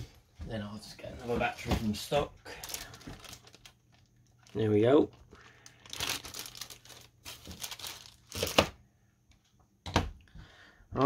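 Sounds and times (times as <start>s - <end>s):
plastic bag crinkling: 2.5s - 8.8s.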